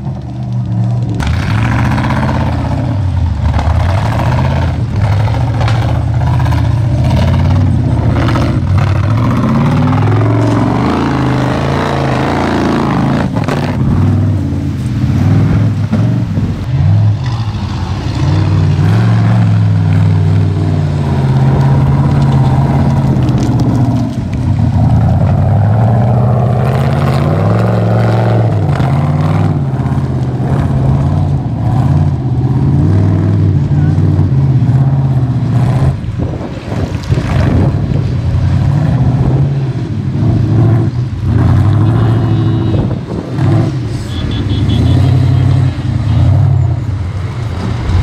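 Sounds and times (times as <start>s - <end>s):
buggy engine revving: 0.0s - 48.0s.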